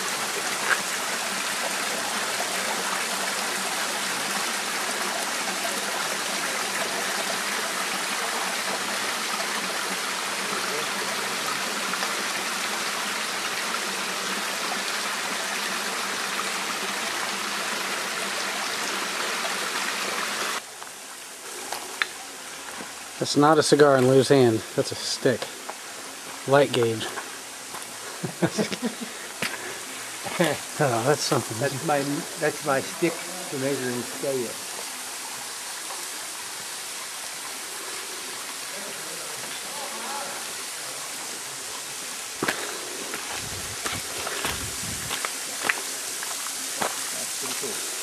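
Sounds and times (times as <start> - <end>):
waterfall splashing onto rock: 42.3 - 47.8.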